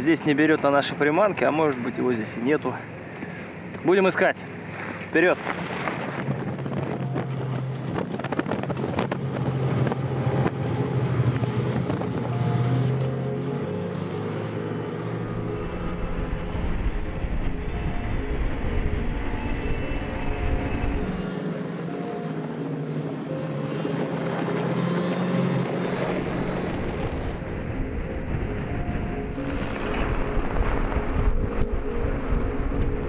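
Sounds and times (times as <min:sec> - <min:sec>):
wind on microphone: 0:05.6 - 0:21.4, 0:23.9 - 0:33.0
snowmobile engine running: 0:06.1 - 0:33.0
low rumble: 0:15.0 - 0:21.3, 0:25.8 - 0:33.0.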